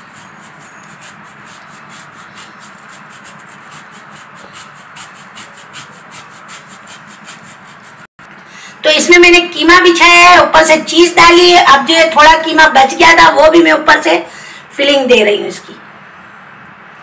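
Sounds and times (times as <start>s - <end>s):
cheese grated on metal grater: 0.0s - 8.1s.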